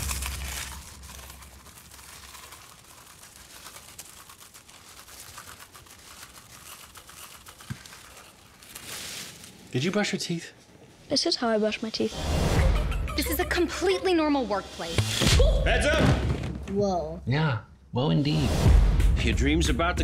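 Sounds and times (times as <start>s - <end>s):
wrapping crinkling: 0.0s - 10.0s.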